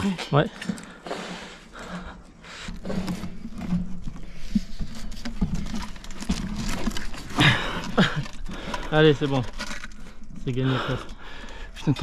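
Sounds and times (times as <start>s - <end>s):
men grunting and straining: 7.3s - 9.0s.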